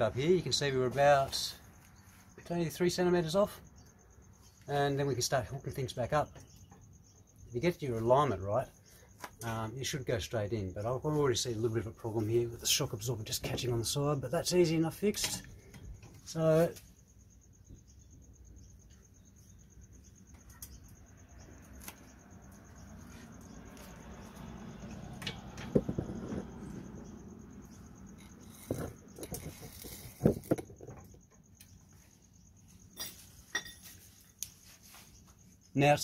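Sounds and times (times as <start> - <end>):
insect chirring: 0.0 - 36.0
metal clinks and knocks: 32.8 - 34.1.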